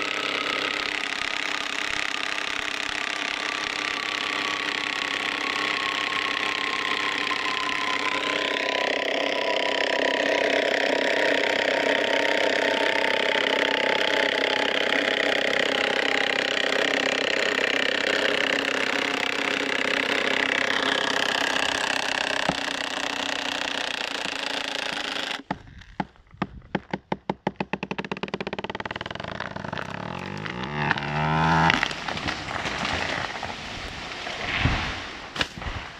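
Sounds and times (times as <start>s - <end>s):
cordless drill motor labouring: 0.0s - 33.5s
wood cracking: 0.0s - 34.7s
tree falling with rush: 28.4s - 35.9s.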